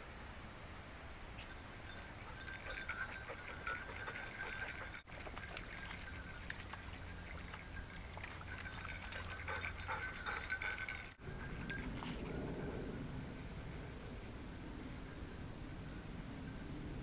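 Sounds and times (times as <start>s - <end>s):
rustle of movement on path: 0.3s - 15.3s
dogs sniffing and snuffling: 1.4s - 13.0s.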